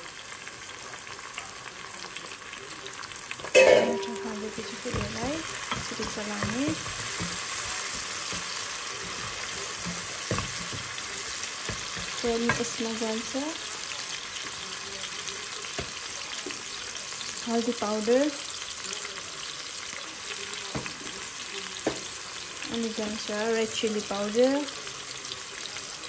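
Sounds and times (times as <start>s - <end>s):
onion frying in hot oil: 0.0s - 26.0s
loud burst of sizzle and clatter: 4.2s - 12.8s.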